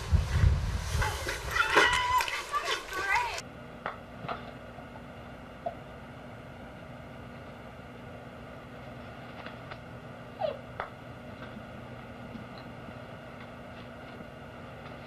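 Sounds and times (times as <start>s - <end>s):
low hum: 3.2s - 15.0s.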